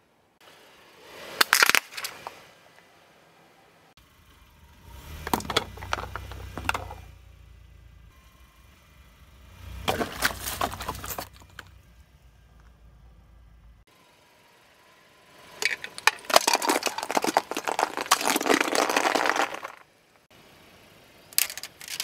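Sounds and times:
low car rumble: 0:00.2 - 0:22.0
tyre crushing plastic bowls: 0:05.2 - 0:07.0, 0:09.9 - 0:11.5, 0:15.6 - 0:19.8.

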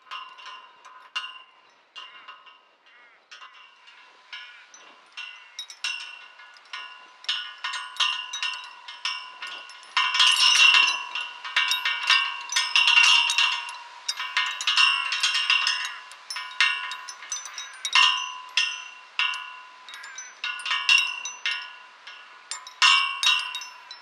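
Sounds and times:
metal chains clinking and jingling: 0:03.3 - 0:24.0.

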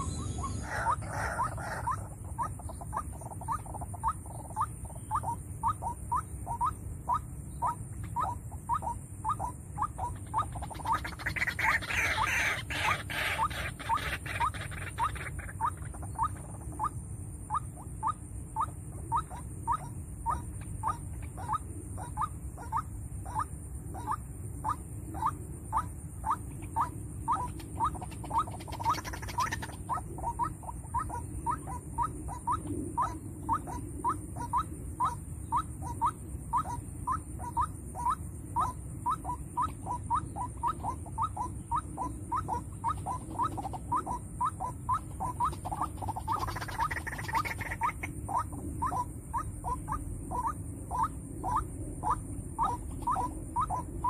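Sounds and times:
waterhen calling: 0:00.0 - 0:16.9, 0:26.6 - 0:33.8, 0:36.6 - 0:54.0.

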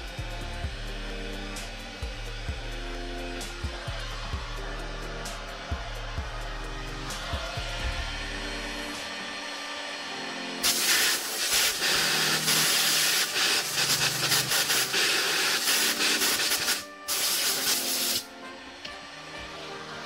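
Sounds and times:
compressed air blow gun hissing: 0:06.8 - 0:18.5.

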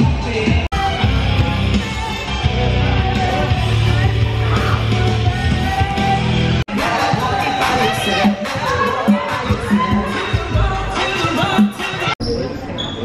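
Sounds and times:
rock music with guitar and bass: 0:00.0 - 0:07.1.

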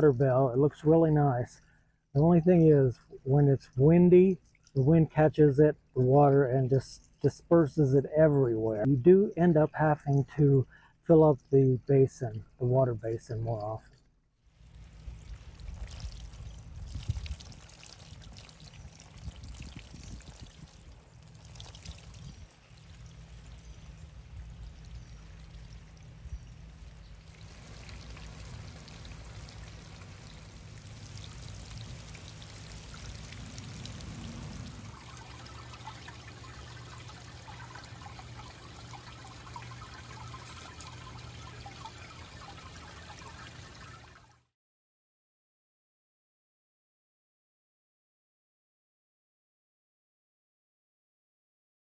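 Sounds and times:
fountain water splashing on stones: 0:14.6 - 0:44.3.

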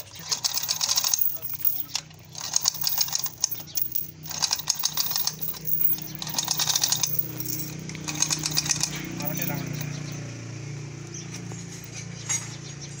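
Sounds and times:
chain hoist clicking and rattling: 0:00.0 - 0:10.3.

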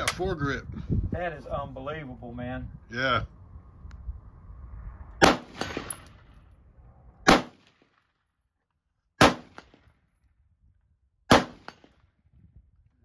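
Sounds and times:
rifle shots: 0:05.2 - 0:06.2, 0:07.2 - 0:08.0, 0:09.2 - 0:09.9, 0:11.3 - 0:12.0.

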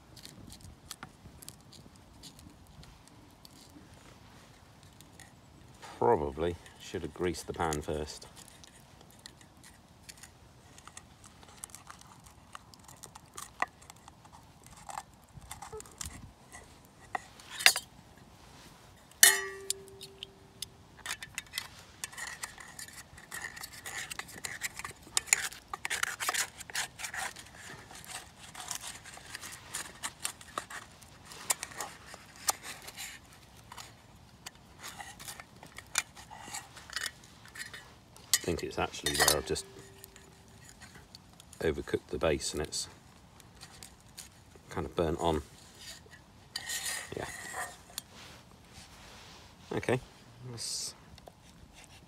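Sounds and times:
metal utensil scraping frying pan: 0:19.2 - 0:20.4, 0:36.9 - 0:40.4
pan ringing clink: 0:19.2 - 0:20.5.

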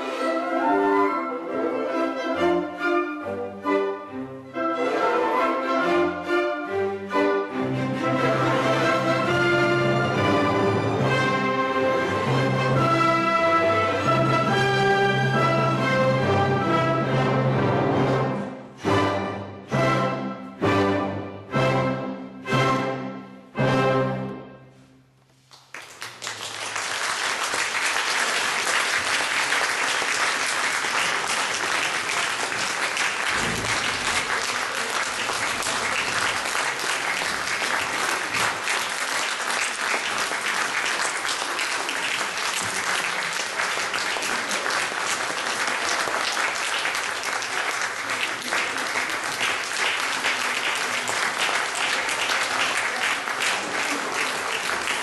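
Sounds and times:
audience applauding: 0:25.5 - 0:55.0.

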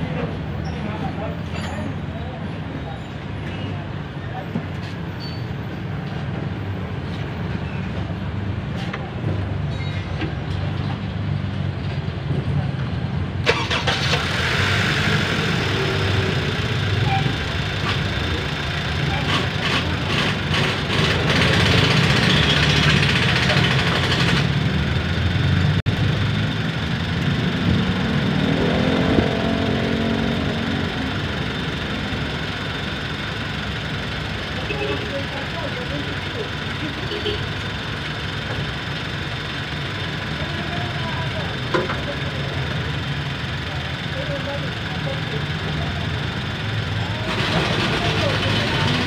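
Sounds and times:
car engine idling: 0:13.4 - 0:28.5, 0:29.4 - 0:49.0.

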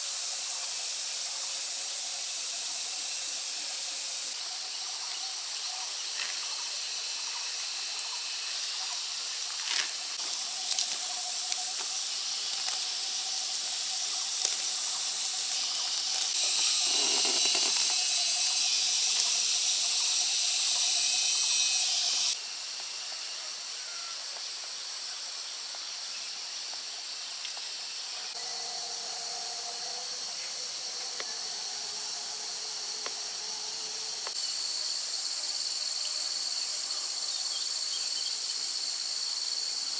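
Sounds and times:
high-pitched outdoor hiss: 0:00.0 - 0:39.9.

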